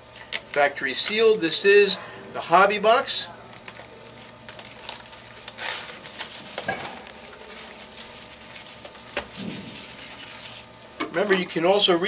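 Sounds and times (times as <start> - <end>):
plastic wrapping crinkling: 3.5 - 10.9.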